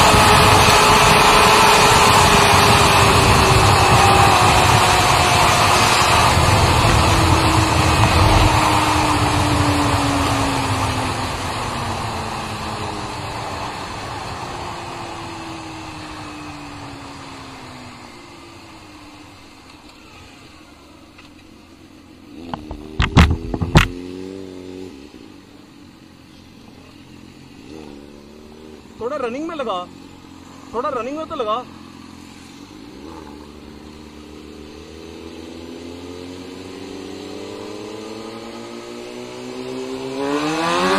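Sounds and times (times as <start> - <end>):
wind rushing: 0.0 - 10.4
motorcycle engine decelerating: 0.0 - 40.9.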